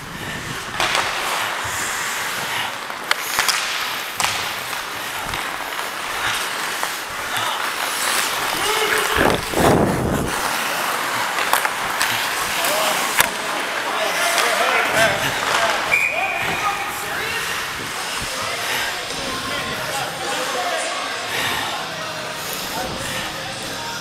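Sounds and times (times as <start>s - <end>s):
skate blades scraping on ice: 0.1s - 23.4s
hockey stick and puck clicks: 0.8s - 9.6s, 10.2s - 16.0s.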